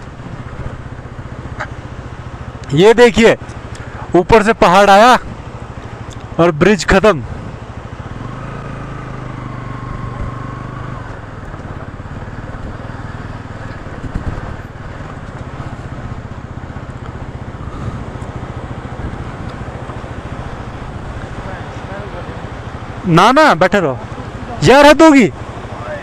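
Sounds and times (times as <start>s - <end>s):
wind and road noise: 0.0s - 26.0s
motorcycle engine low revs: 7.3s - 23.0s.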